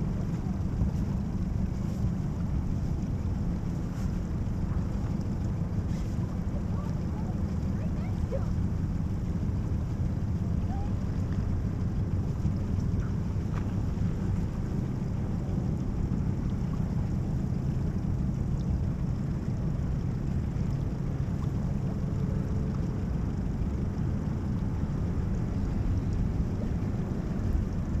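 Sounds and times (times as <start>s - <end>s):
outboard motor rumbling: 0.0s - 28.0s.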